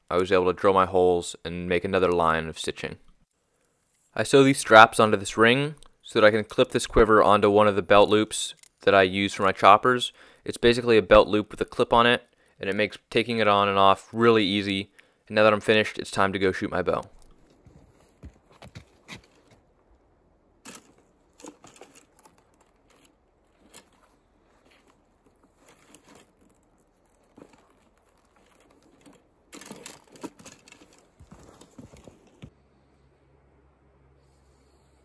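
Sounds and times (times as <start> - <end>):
archery gear rustling and clicking: 7.9 - 9.6, 16.9 - 19.6, 20.6 - 32.5.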